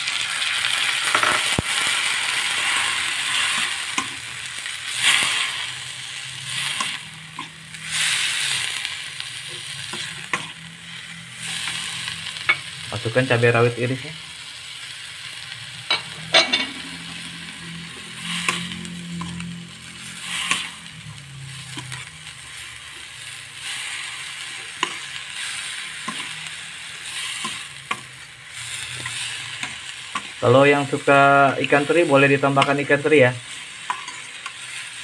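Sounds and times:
food sizzling in a wok: 0.0s - 35.0s
metal spoon scraping a wok: 15.9s - 20.8s, 33.6s - 35.0s.

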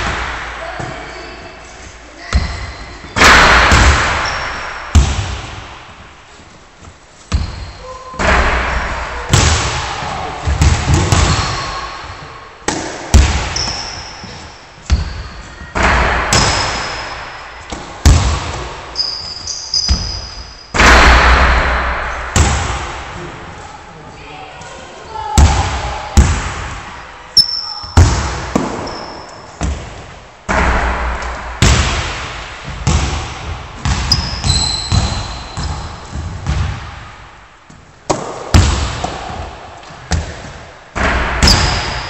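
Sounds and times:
basketballs hitting rim and backboard: 0.0s - 1.2s, 2.3s - 6.1s, 7.3s - 23.2s, 25.3s - 26.9s, 27.8s - 42.0s
balls bouncing on wooden floor: 7.3s - 8.6s, 17.6s - 20.4s, 32.6s - 37.0s.

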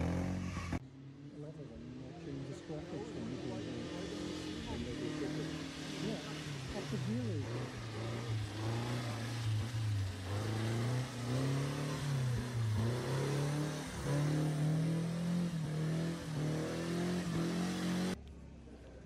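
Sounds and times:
racing car engine accelerating: 2.4s - 18.2s.

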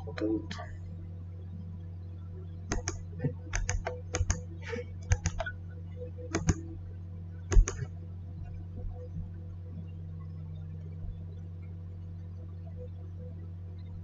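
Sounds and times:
steady low hum: 0.0s - 14.0s
computer keyboard keystrokes: 2.7s - 4.4s, 5.0s - 5.5s, 6.3s - 6.6s, 7.5s - 7.9s.

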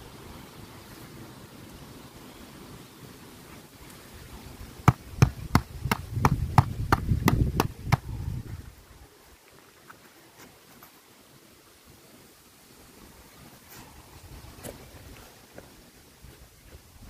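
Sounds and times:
tapping on plastic plant pot: 4.9s - 8.1s.

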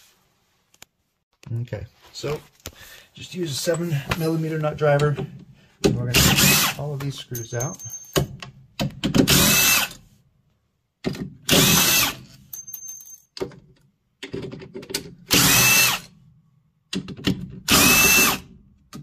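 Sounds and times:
power drill whining: 11.5s - 12.2s, 15.3s - 16.1s, 17.7s - 18.4s.

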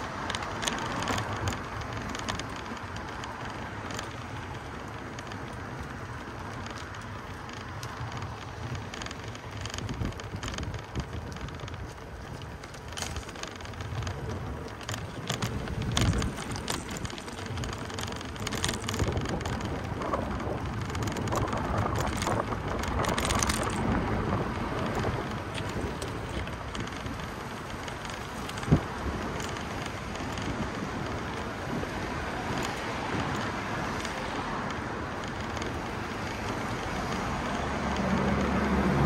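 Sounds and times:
wind rumbling on microphone: 0.0s - 39.0s
vehicle passing: 28.5s - 39.0s.

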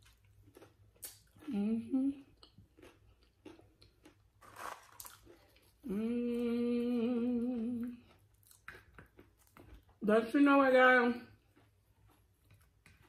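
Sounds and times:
chewing and crunching chips: 0.0s - 13.0s
person humming mmm: 1.4s - 2.4s, 5.8s - 8.1s.

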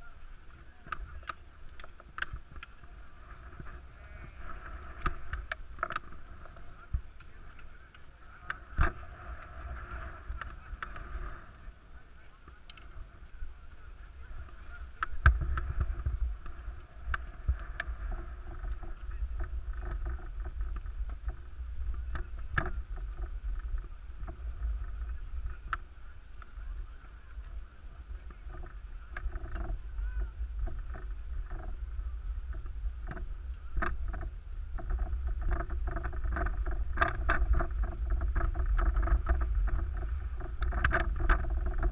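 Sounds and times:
skis scraping over snow: 0.0s - 41.9s
wind rumbling on microphone: 0.0s - 41.9s
small clicks: 0.4s - 3.7s.

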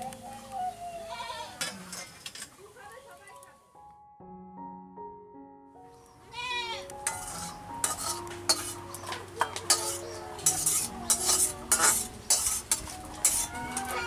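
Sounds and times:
metal spatula scraping steel wok: 1.6s - 2.6s, 7.0s - 14.0s.

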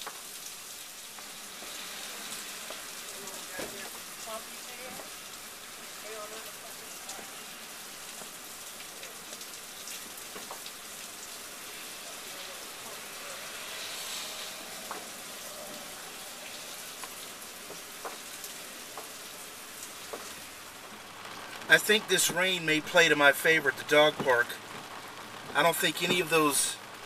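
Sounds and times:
rain on car windshield: 0.0s - 27.0s
raindrops ticking: 0.0s - 27.0s.

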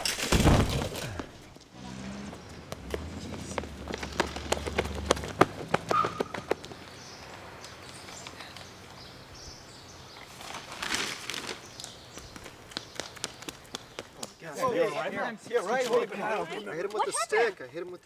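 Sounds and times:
bird chirp: 2.2s - 10.7s, 11.6s - 14.2s
running footsteps on pavement: 2.3s - 9.2s, 11.6s - 17.0s.

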